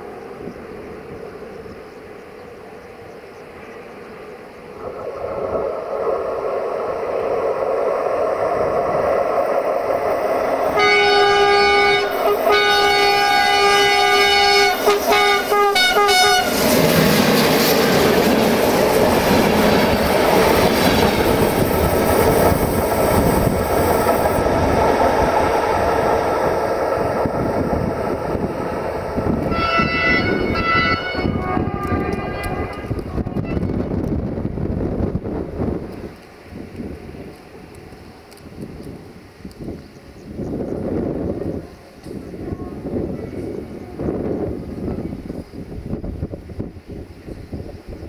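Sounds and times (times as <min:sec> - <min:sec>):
train wheels on rails: 0:00.0 - 0:48.0
train horn: 0:10.7 - 0:16.8, 0:29.4 - 0:34.0.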